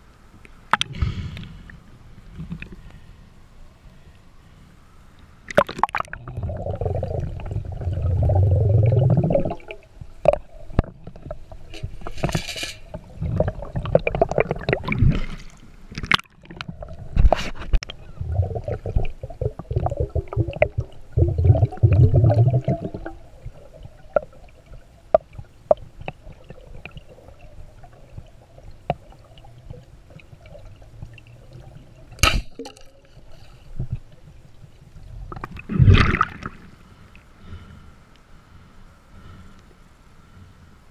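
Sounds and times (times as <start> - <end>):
water sloshing and gurgling: 5.5 - 37.4
speargun firing underwater: 32.2 - 32.9.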